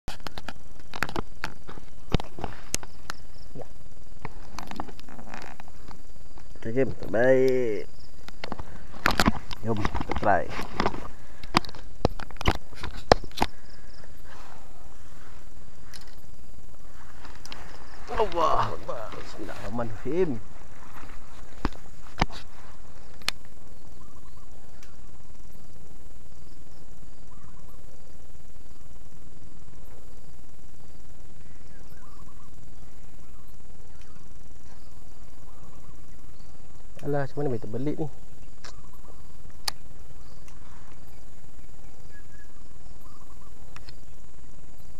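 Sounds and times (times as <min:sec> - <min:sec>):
steady background noise: 0:00.1 - 0:44.9
faint bird chirps: 0:22.5 - 0:30.2, 0:31.2 - 0:44.9.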